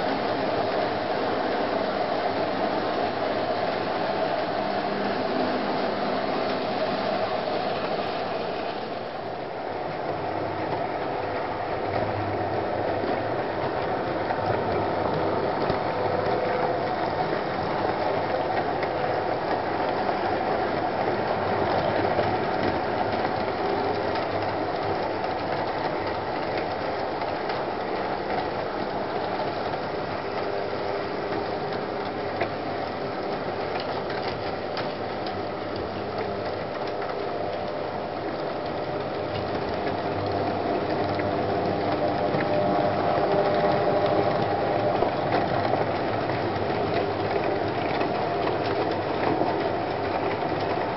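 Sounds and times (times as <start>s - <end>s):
model trains whirring on track: 0.0s - 50.9s.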